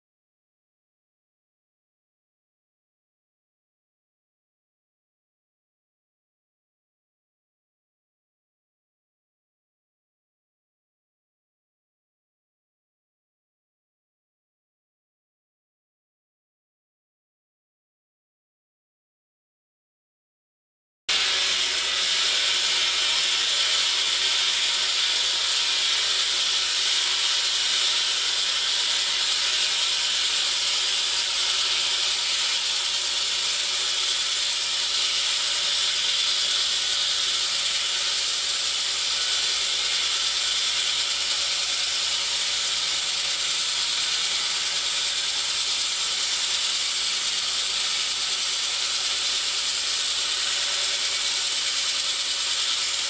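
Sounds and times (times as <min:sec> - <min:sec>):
diamond saw blade spinning whir: 0:21.1 - 0:53.0.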